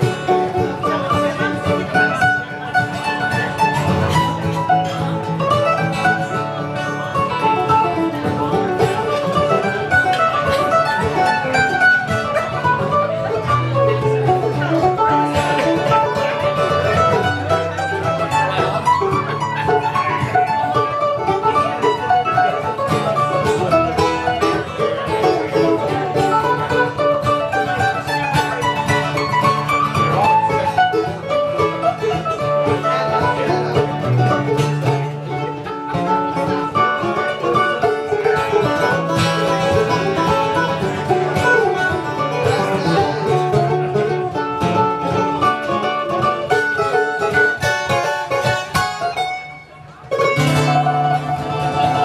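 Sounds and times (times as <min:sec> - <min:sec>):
acoustic guitar: 0:00.0 - 0:52.0
banjo picking quick notes: 0:00.0 - 0:52.0
mandolin: 0:00.0 - 0:52.0.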